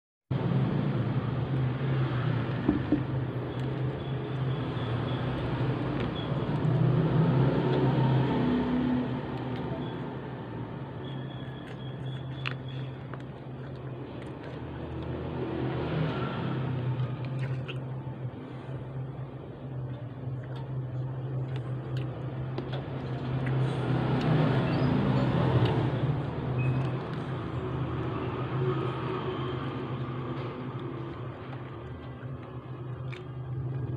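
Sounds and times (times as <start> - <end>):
chewing burger with wet clicks: 11.3 - 15.2, 30.8 - 33.9.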